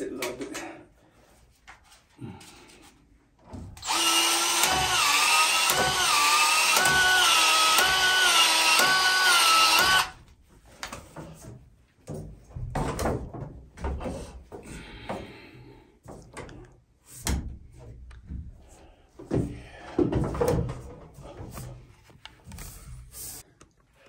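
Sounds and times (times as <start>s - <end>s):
expansion tool motor running: 3.8s - 10.2s.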